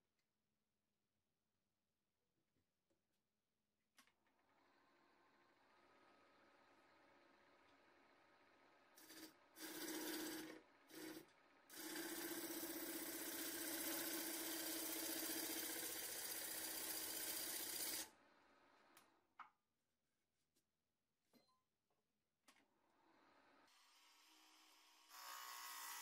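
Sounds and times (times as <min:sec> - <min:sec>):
power tool running: 0:09.0 - 0:18.1, 0:23.7 - 0:26.0.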